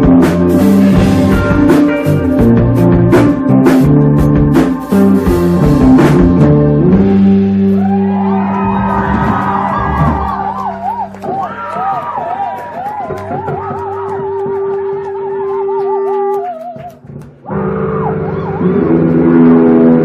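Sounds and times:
drum kit playing: 0.0 - 20.0
electric guitar: 0.0 - 20.0
people shouting: 7.7 - 16.9.

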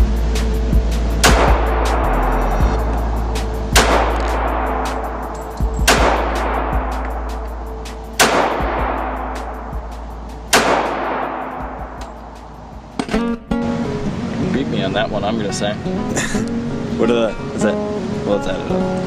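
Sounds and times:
low music drone: 0.0 - 18.8
pistol shots echoing indoors: 3.8 - 4.8, 5.8 - 7.0, 8.2 - 9.4, 10.5 - 11.7.

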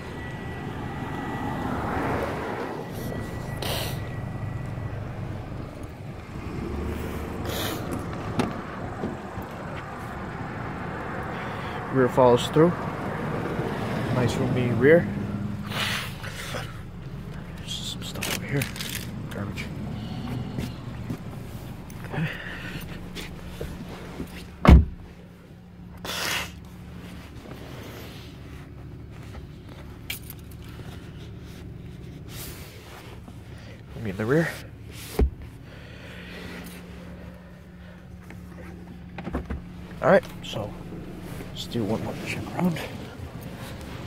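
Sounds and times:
car engine idling: 0.0 - 44.0
steady low hum: 0.0 - 44.0
car door opening clicks: 24.6 - 25.0.

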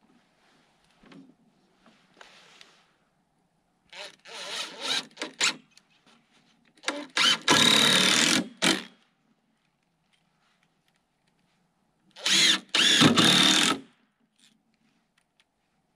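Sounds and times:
impact driver driving screws: 6.8 - 8.9, 12.2 - 13.8.

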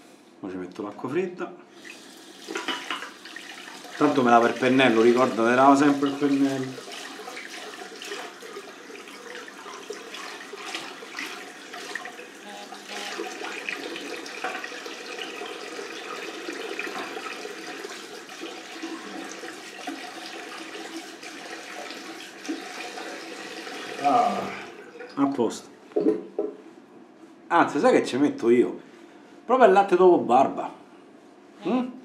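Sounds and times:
tap water running into sink: 1.8 - 25.4
water splashing: 2.0 - 25.2.

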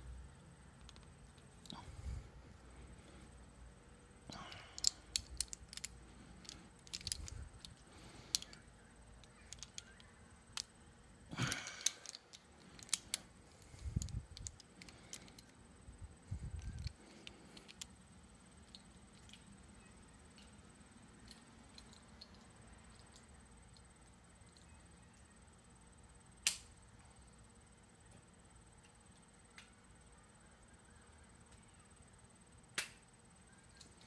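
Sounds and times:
metal rifle parts clicking: 0.8 - 1.8, 4.3 - 10.7, 11.4 - 15.6, 16.5 - 18.0.

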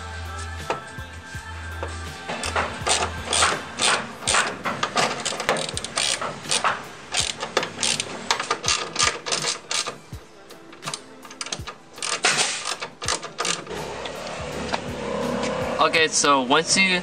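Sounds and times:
socket ratchet clicking: 2.4 - 10.1, 10.8 - 14.4.

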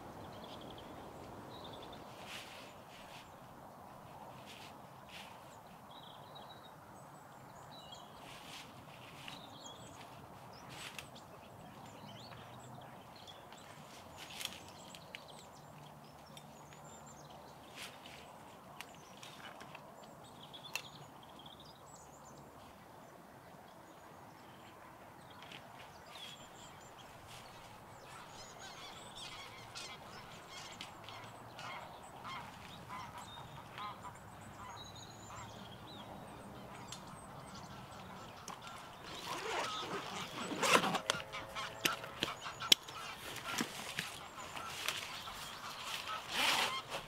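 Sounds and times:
small birds chirping: 23.9 - 47.0
geese honking: 37.6 - 47.0.

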